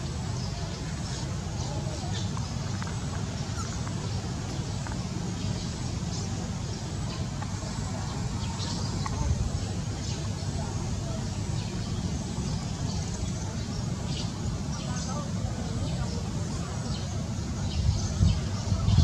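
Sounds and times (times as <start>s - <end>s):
low outdoor rumble: 0.0s - 19.0s.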